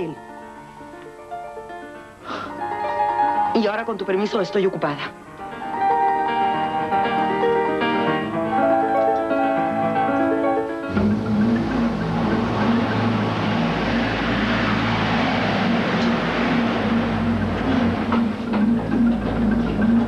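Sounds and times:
keyboard music: 0.0s - 20.0s
pickup truck driving: 10.9s - 20.0s.

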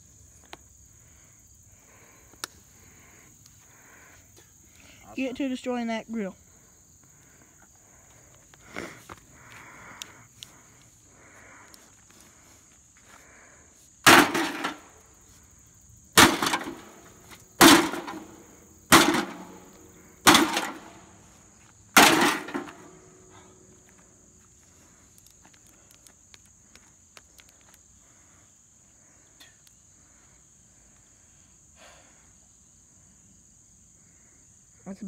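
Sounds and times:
sledgehammer clanging on sheet metal: 14.1s - 14.9s, 16.2s - 17.0s, 17.6s - 21.0s, 22.0s - 23.1s.

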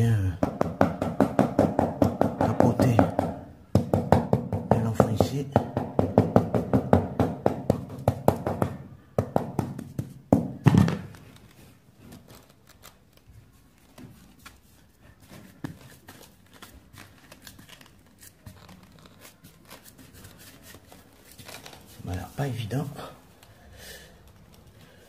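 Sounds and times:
mallet tapping floor tile: 0.3s - 11.2s.

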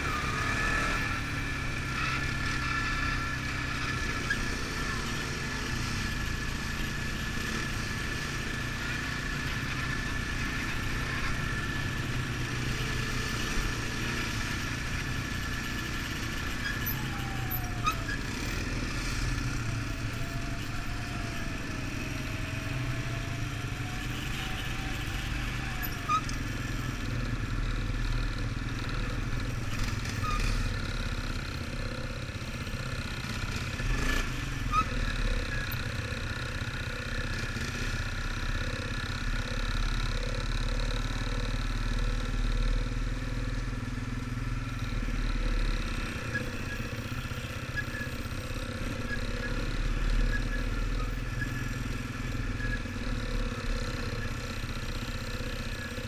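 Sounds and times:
quad bike engine running: 0.0s - 56.0s.

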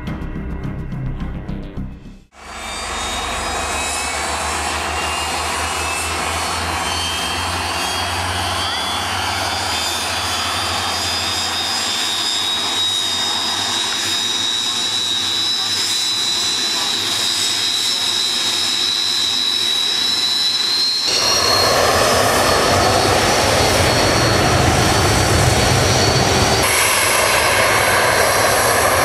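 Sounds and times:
jet engine whine: 2.3s - 29.0s
low hum: 2.4s - 11.0s.

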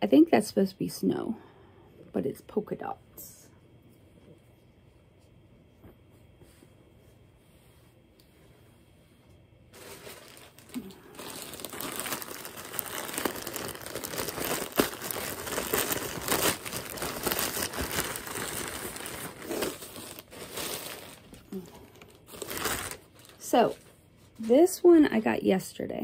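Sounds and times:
plastic bag rustling and crackling: 9.7s - 24.8s.

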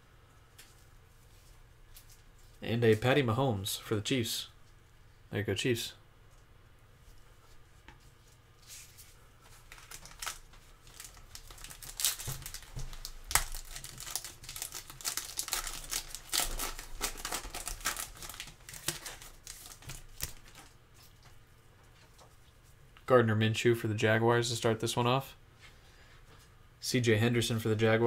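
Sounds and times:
foil wrapper crinkling: 8.7s - 21.2s.

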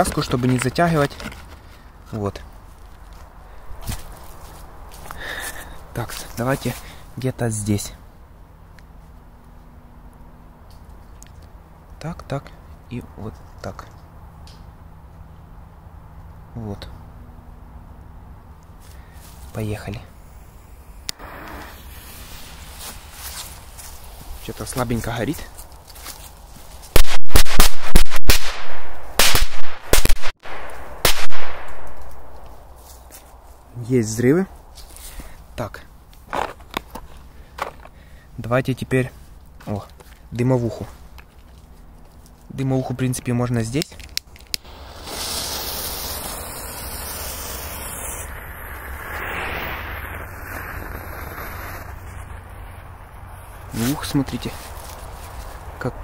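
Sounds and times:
smoke bomb hissing: 19.0s - 24.5s, 44.6s - 54.1s
smoke bomb igniting clicks: 20.4s - 23.0s, 44.0s - 52.5s
firecrackers banging: 21.2s - 24.1s, 44.6s - 54.0s.

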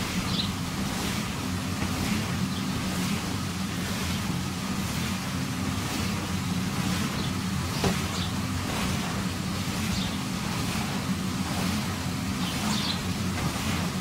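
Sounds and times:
inflator blower humming: 0.0s - 14.0s.

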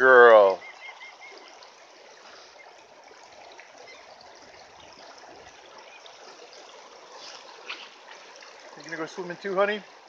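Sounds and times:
creek running over gravel: 0.0s - 10.0s.

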